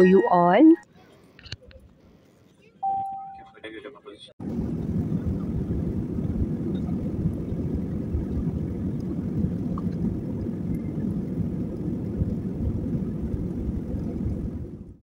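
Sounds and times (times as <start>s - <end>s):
jet airliner rumble from cabin: 4.4s - 15.0s.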